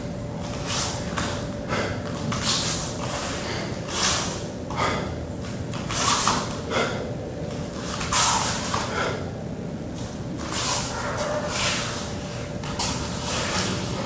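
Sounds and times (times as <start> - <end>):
loud forceful breaths: 1.6 - 2.2, 3.0 - 5.2, 5.9 - 7.1, 8.0 - 9.4.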